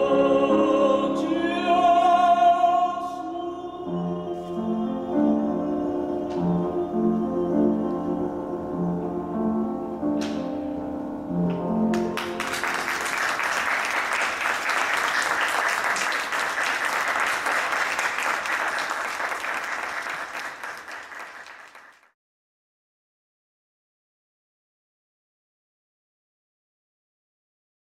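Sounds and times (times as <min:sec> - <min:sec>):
grand piano: 0:00.0 - 0:22.0
audience applauding: 0:11.9 - 0:22.2.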